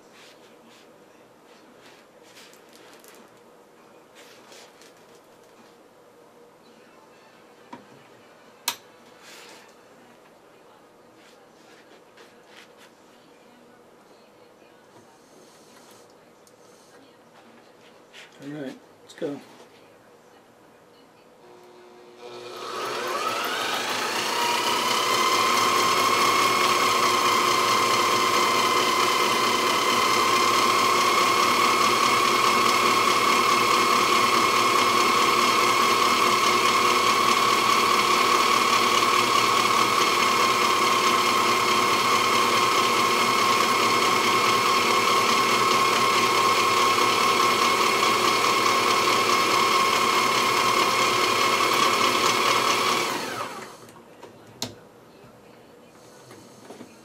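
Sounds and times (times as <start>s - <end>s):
sewing machine motor whine: 21.5s - 53.9s.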